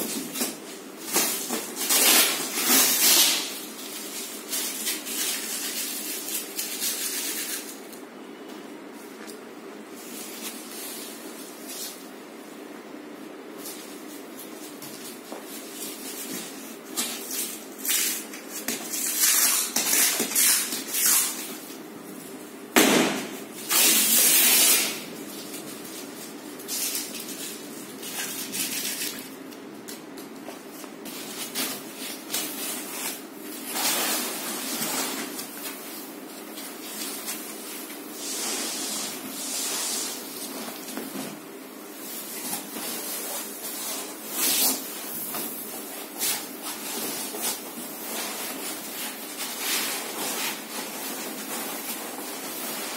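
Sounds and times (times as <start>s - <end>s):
packing wrap rustling and crinkling: 0.0s - 7.9s.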